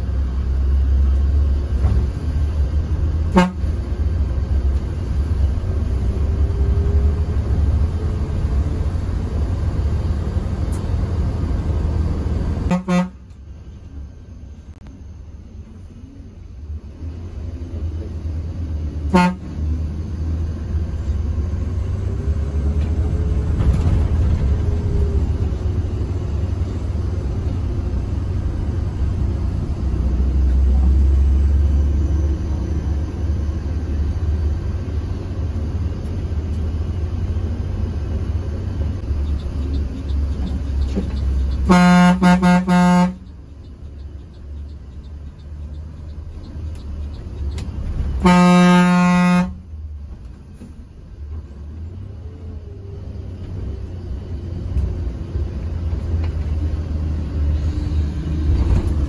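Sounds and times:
bus engine and road noise: 0.0s - 59.0s
bus horn: 3.2s - 3.9s, 12.6s - 13.5s, 19.0s - 19.8s, 41.5s - 43.4s, 48.1s - 49.7s.

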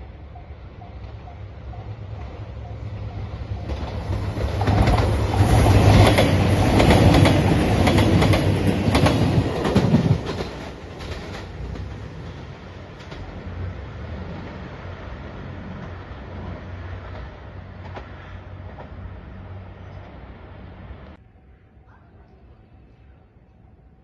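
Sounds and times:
diesel train passing: 0.0s - 21.8s
wheels clacking over rail joints: 0.8s - 20.2s.

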